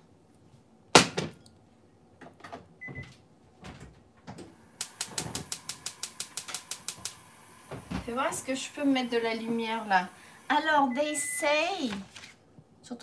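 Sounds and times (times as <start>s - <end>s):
gas stove igniter clicking: 4.8s - 9.9s.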